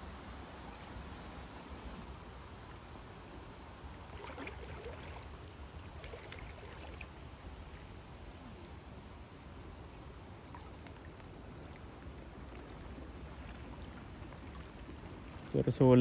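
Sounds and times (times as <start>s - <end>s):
water lapping against rocky shore: 4.0s - 8.1s, 10.1s - 16.0s
water trickling and splashing: 4.0s - 16.0s.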